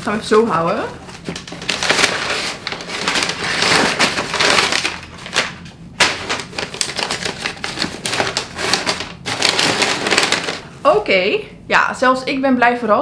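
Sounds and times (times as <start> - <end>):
packing paper crinkling: 0.3 - 10.7.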